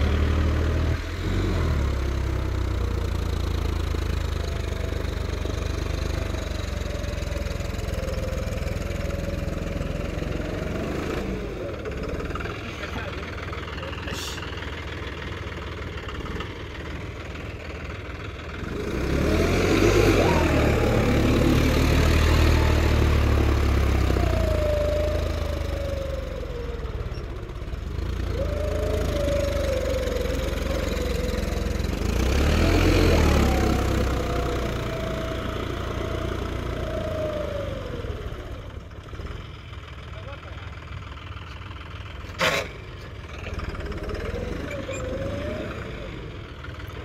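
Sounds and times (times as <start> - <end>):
engine whine: 0.0 - 40.7, 41.4 - 47.0
tractor diesel engine revving: 0.0 - 47.0.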